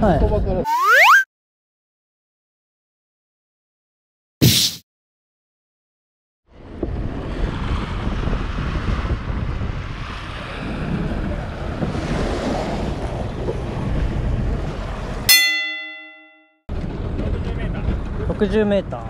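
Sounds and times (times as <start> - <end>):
wind buffeting microphone: 6.5 - 15.3, 16.7 - 19.0
sea water sloshing: 11.0 - 15.3.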